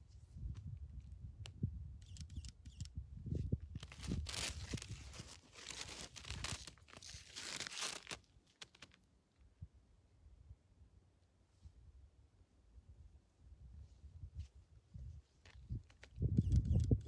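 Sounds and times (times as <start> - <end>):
low wind buffeting: 0.4 - 5.4, 14.9 - 17.0
crinkly rustling on microphone: 2.0 - 9.0, 14.4 - 17.0.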